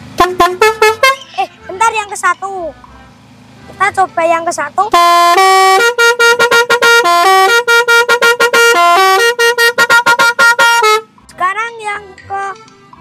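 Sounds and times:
musical air horn melody: 0:00.1 - 0:01.8, 0:04.8 - 0:11.2.

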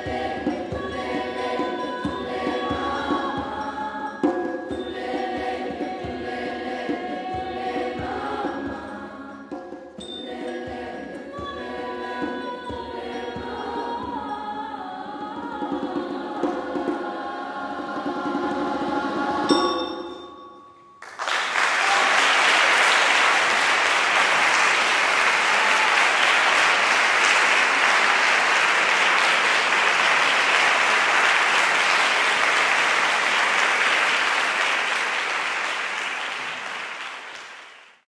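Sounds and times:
children's choir singing: 0:00.0 - 0:20.2, 0:21.8 - 0:37.7
sharp ringing stroke: 0:19.5 - 0:21.0
audience applauding: 0:21.0 - 0:38.0.

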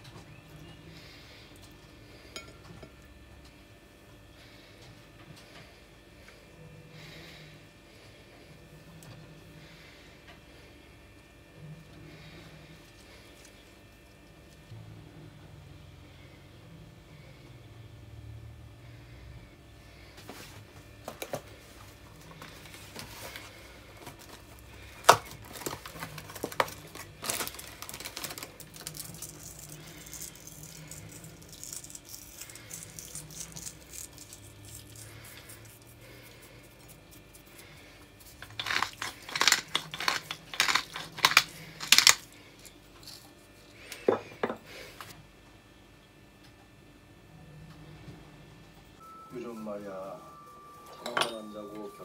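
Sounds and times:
pepper mill grinding: 0:24.1 - 0:44.0
salt flakes crumbled: 0:38.2 - 0:42.3.

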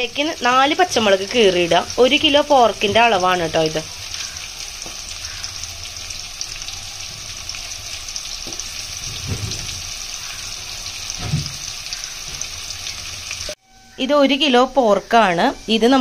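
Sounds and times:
onions frying in hot oil: 0:00.0 - 0:13.6
dull knocks: 0:08.4 - 0:09.8, 0:11.2 - 0:11.6.

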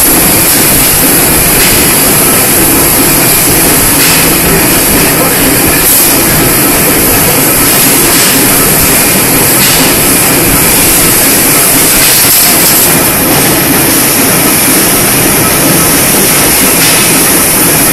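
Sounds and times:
bending machine running with hiss: 0:00.0 - 0:17.9.

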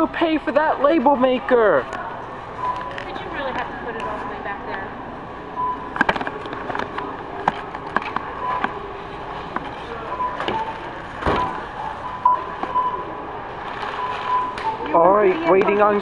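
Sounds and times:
store background noise: 0:00.0 - 0:16.0
barcode scanner beeps: 0:02.5 - 0:04.4, 0:05.6 - 0:06.1, 0:10.1 - 0:13.2, 0:13.9 - 0:15.6.

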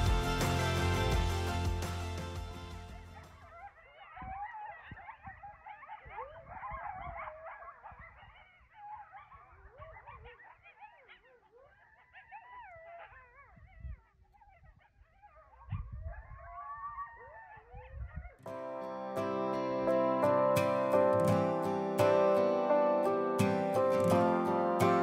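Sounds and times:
coyotes howling and yipping: 0:03.4 - 0:18.6.

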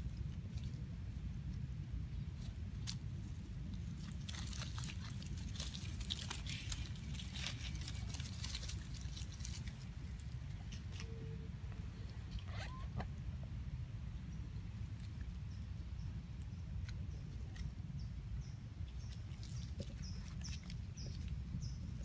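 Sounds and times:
steady low rumble: 0:00.0 - 0:22.0
dry leaves crackling and rustling: 0:02.4 - 0:11.5, 0:18.8 - 0:22.0.

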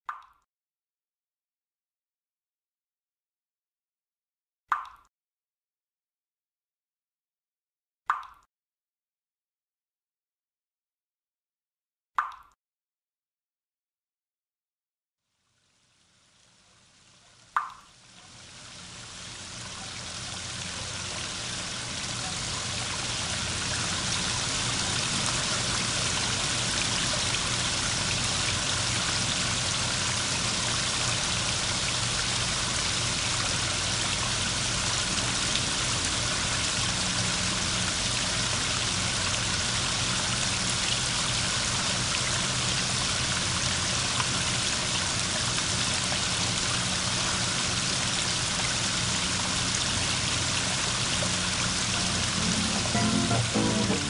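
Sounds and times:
running water of a stream: 0:15.5 - 0:54.0.

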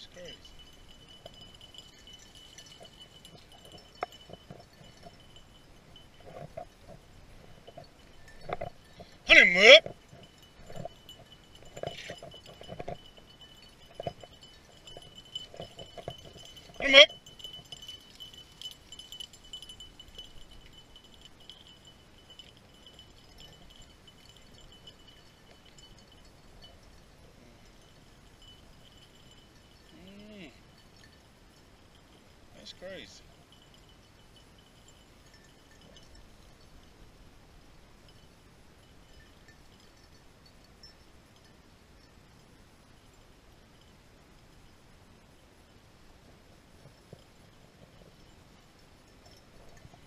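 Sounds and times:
metallic tinkling: 0:00.0 - 0:50.0
distant dogs yelping and baying: 0:00.3 - 0:26.9
thin high tone: 0:09.2 - 0:10.0, 0:16.6 - 0:17.4, 0:29.9 - 0:30.6.

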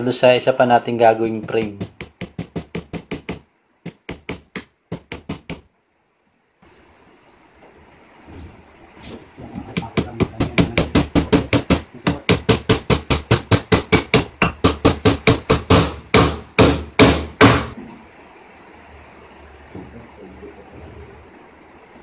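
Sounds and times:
hammer striking nails into wood: 0:01.4 - 0:05.7, 0:09.5 - 0:17.8.

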